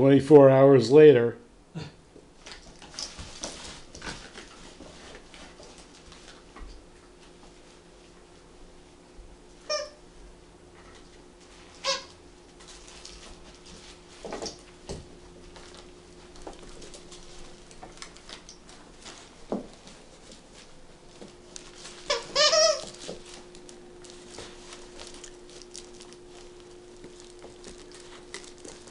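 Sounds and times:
soft rustling and pattering: 2.4 - 8.9, 12.5 - 28.9
squeaky toy squeaks: 9.7 - 10.0, 11.8 - 12.1, 22.1 - 23.0.

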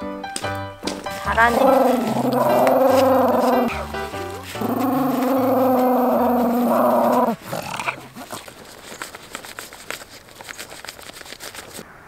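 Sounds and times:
ticks on tent fabric: 0.3 - 11.8
rustling on tent fabric: 0.4 - 11.8
small dog growling: 1.4 - 8.8.

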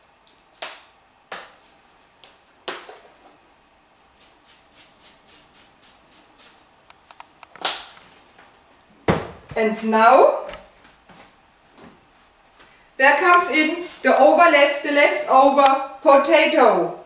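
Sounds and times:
salt shaken from canister: 4.0 - 6.7.

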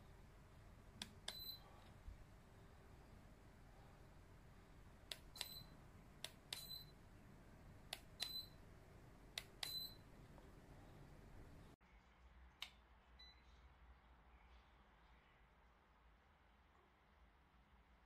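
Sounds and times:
faint low hum: 0.0 - 18.0
sharp clicks: 5.0 - 6.9, 7.9 - 8.5.

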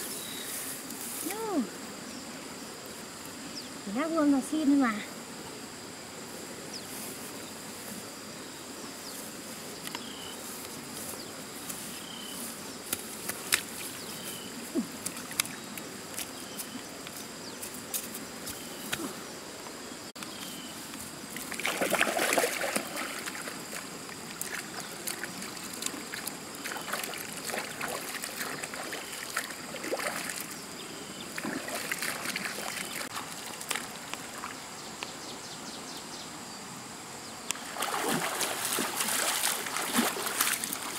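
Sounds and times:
high insect drone: 0.0 - 40.9
stream water trickling: 19.6 - 34.8, 37.5 - 40.9
hands splashing in water: 21.4 - 23.8, 37.6 - 40.9.

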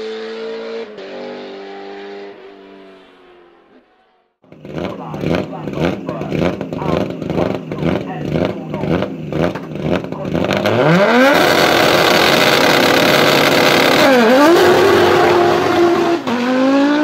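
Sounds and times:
car engine popping and revving: 4.4 - 17.0.

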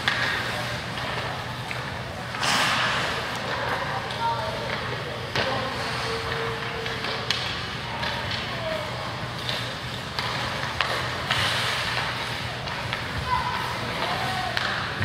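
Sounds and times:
hockey sticks clacking on puck: 0.0 - 15.0
rink hall hum: 0.0 - 15.0
skates hissing on ice: 2.3 - 3.8, 5.5 - 6.4, 9.4 - 14.5.

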